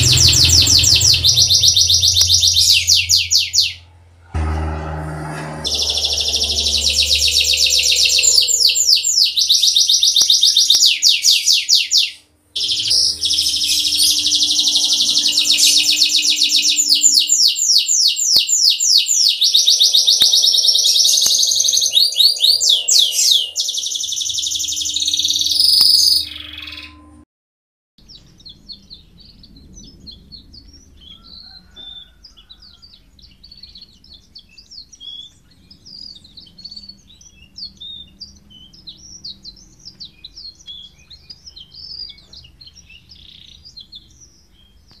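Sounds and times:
canary singing loud trills: 5.6 - 27.1, 28.0 - 44.8
faint canary chirps and trills: 28.0 - 45.0.

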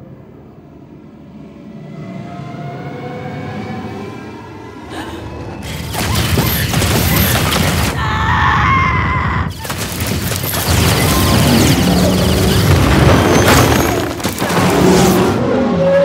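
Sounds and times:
action film sound effects: 0.0 - 16.0.

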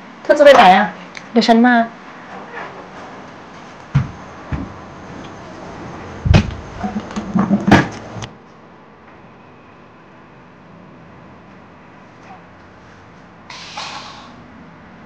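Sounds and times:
heavy thump: 3.9 - 4.8, 6.2 - 7.9
hard objects knocking: 6.3 - 8.0.

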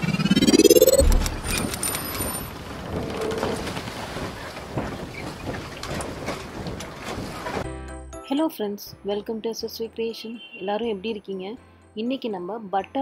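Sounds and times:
rising whoosh: 0.0 - 2.0.

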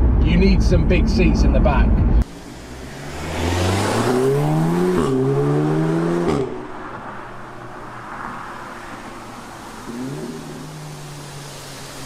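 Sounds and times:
road rumble: 0.0 - 12.0
car engine accelerating: 2.2 - 7.1.

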